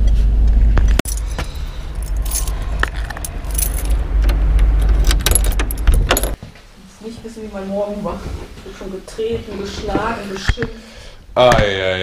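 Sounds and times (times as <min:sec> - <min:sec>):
steady low rumble: 0:00.0 - 0:06.4
keys jangling: 0:01.0 - 0:04.0, 0:04.8 - 0:06.4.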